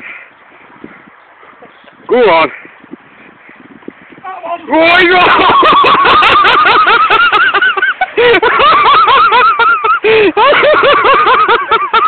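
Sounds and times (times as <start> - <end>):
loud hard laughter: 5.0 - 12.0.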